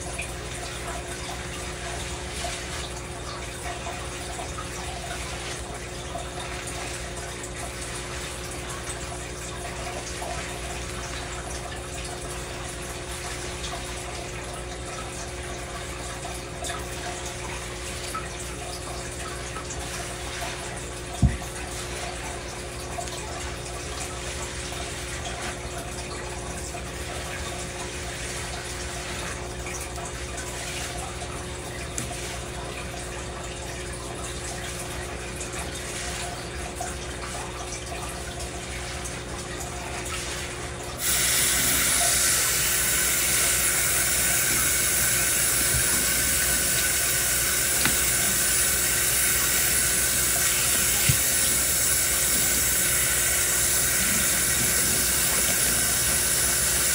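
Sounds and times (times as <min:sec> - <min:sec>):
water running into metal sink: 0:00.0 - 0:56.9
wet scrubbing of lathered hair: 0:19.4 - 0:26.0, 0:27.1 - 0:29.6, 0:39.8 - 0:56.9
faucet turned on: 0:40.0 - 0:56.9.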